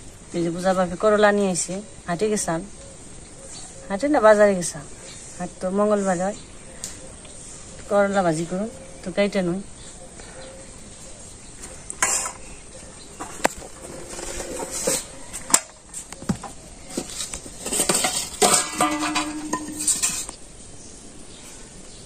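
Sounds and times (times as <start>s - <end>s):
metal bowls knocking and clinking: 16.9s - 20.4s
ringing tones from bowls: 18.4s - 20.3s.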